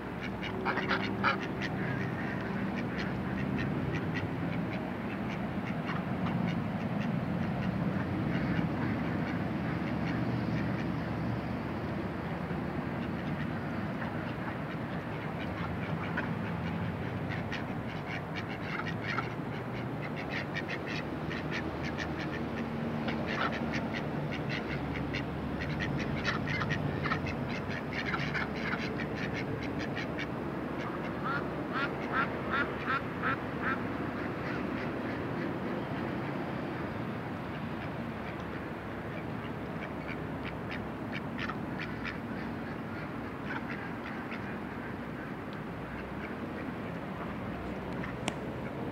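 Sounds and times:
ducks quacking: 0.2 - 11.0, 13.0 - 35.8, 37.8 - 47.4.

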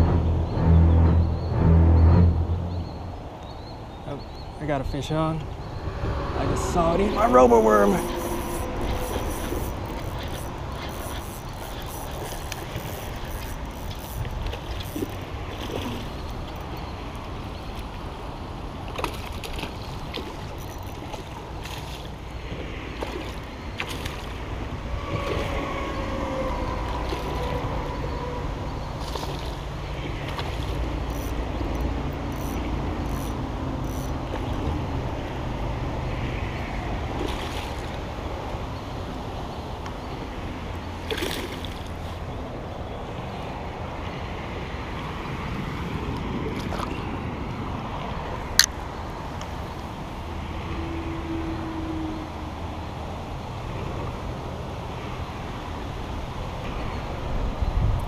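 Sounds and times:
steady low rumble: 0.0 - 14.6
water sloshing and splashing: 5.2 - 49.9.

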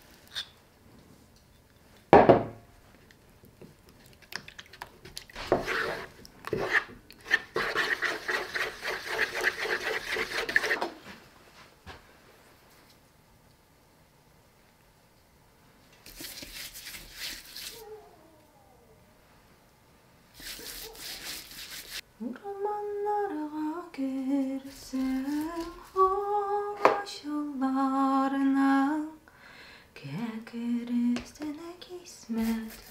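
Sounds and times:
spoon stirring in bowl: 3.9 - 10.8, 16.1 - 17.8.

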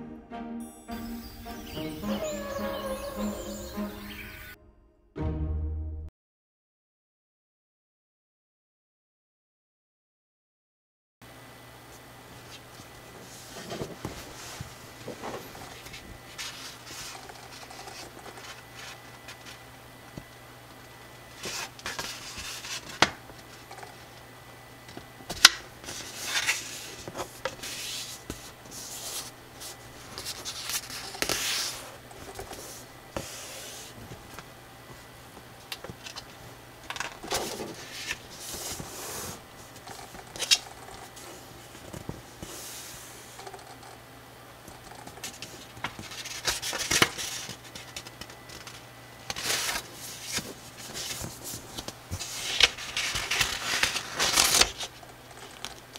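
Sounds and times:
paper rustling and swishing: 12.6 - 19.6, 21.4 - 23.6, 25.4 - 34.4, 37.2 - 40.5, 45.3 - 54.9.

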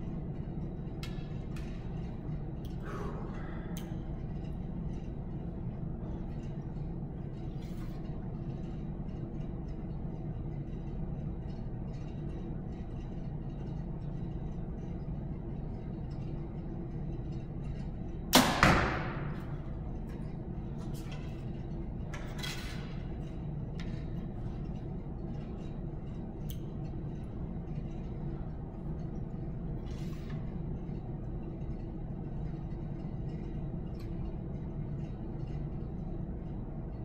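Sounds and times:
low room hum: 0.0 - 37.0
arrow striking target: 18.3 - 19.4.

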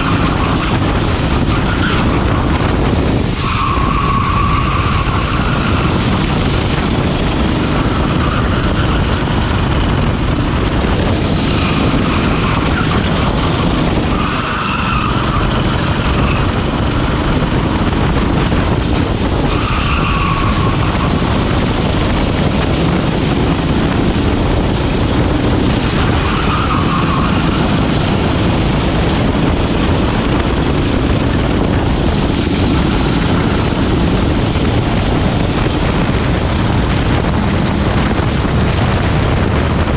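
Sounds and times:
kart engine running hard: 0.0 - 39.9
tyres squealing: 11.5 - 16.5, 26.0 - 28.3.

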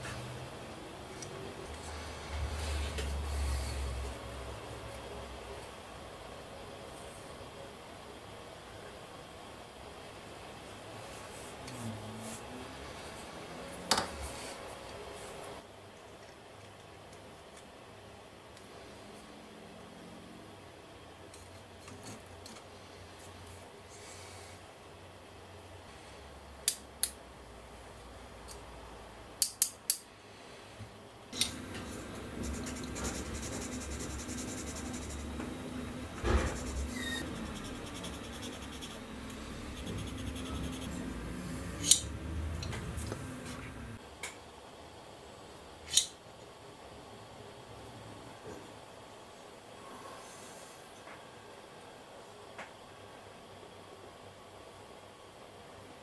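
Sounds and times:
rubbing and handling noise: 31.5 - 41.4.

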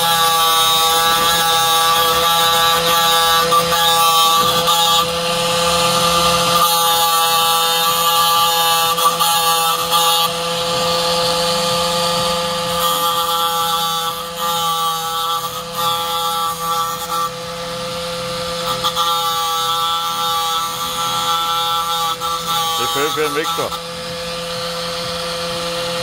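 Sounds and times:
angle grinder motor whine: 0.0 - 26.0
grinding hiss on chain teeth: 18.6 - 23.8.

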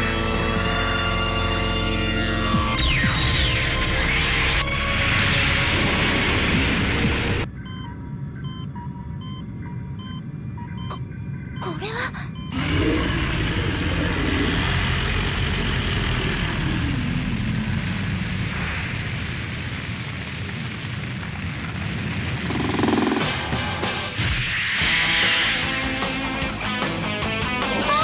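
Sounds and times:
music: 0.0 - 9.8, 22.6 - 28.0
electronic computer beeps: 7.5 - 12.6, 22.5 - 23.3
explosion rumble: 12.6 - 25.0
low hum: 22.4 - 24.4.

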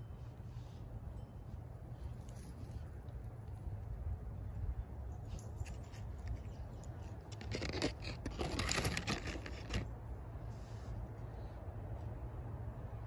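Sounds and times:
rabbits scampering over dry leaves: 5.4 - 9.9.

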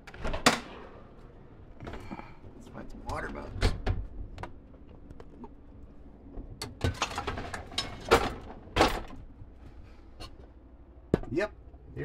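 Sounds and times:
dishwasher racks rattling: 6.8 - 9.1.

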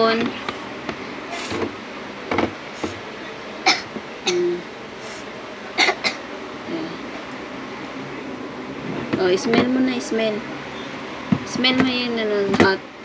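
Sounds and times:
young child coughing: 3.6 - 4.6, 5.8 - 6.2.

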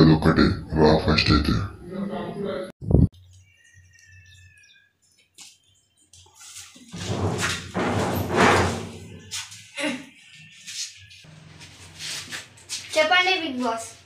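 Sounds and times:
sheet-metal door scraping open: 6.9 - 9.3.

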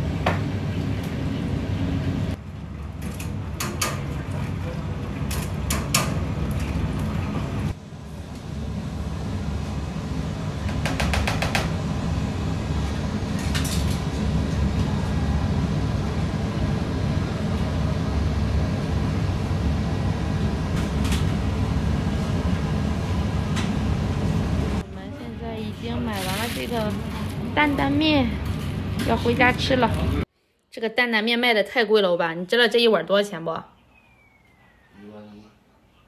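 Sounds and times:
extraction fans humming: 0.0 - 36.0.

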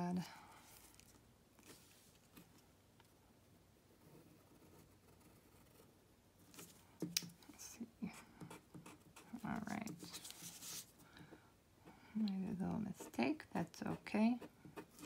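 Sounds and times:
pencil strokes on paper: 8.1 - 11.4, 12.4 - 15.0.

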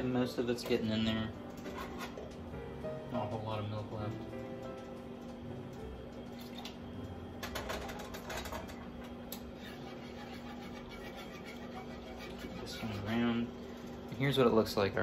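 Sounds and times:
steady low hum: 0.0 - 15.0
utensils scraping nonstick pots: 1.6 - 2.4, 9.4 - 14.4.

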